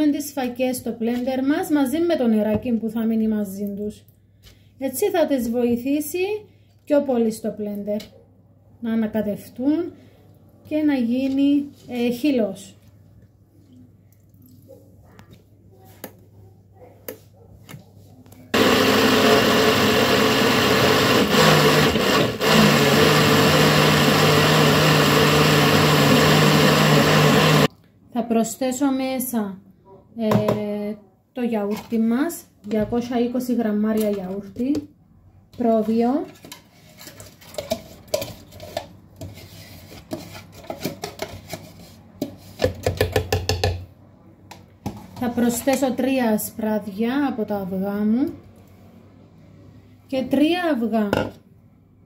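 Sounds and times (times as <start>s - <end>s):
blender running: 18.6s - 27.7s.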